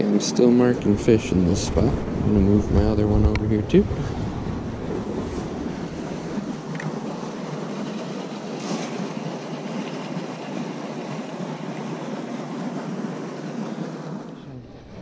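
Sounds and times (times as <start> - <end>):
wind blowing across microphone: 0.0 - 6.9.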